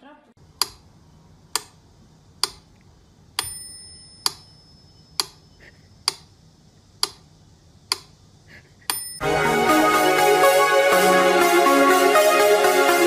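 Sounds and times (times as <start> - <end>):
sharp metallic ticks: 2.4 - 2.7
bell-like ring: 3.4 - 5.2, 8.9 - 9.3.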